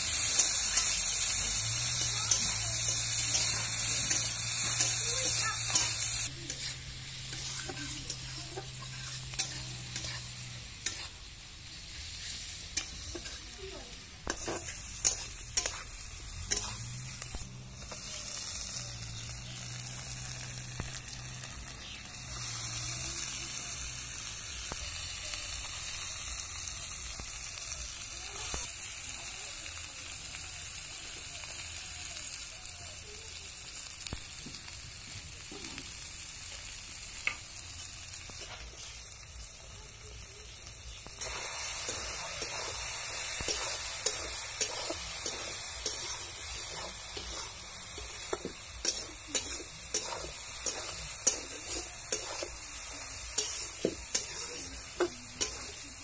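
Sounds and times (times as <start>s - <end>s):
food sizzling in hot oil: 0.0s - 56.0s
metal spatula scraping pan: 2.0s - 11.2s, 14.3s - 15.9s, 16.5s - 17.3s, 41.2s - 52.6s, 53.3s - 55.8s.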